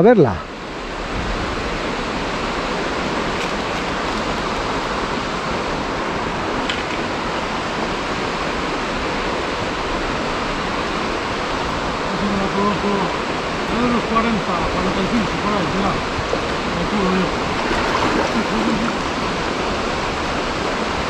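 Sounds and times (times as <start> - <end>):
river water rushing: 0.5 - 21.0.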